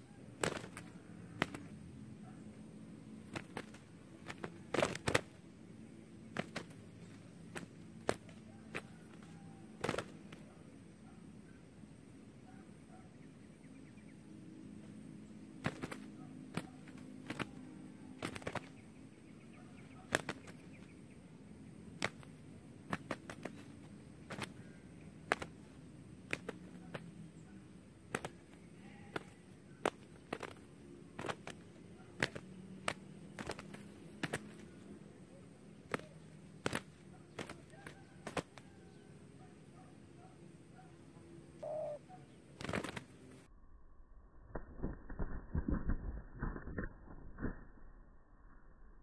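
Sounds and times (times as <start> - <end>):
dove wings slapping: 0.2 - 2.0, 2.9 - 10.8, 15.4 - 39.0, 41.6 - 43.4, 44.5 - 47.6.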